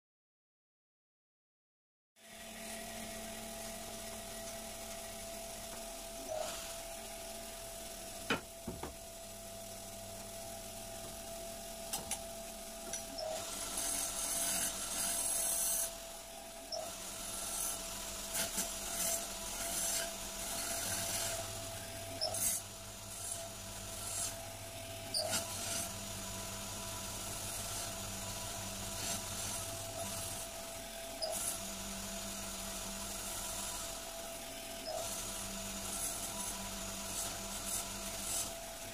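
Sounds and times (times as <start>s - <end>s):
lathe motor hum: 2.3s - 38.9s
chisel scraping spinning wood: 13.3s - 16.0s, 17.0s - 30.5s.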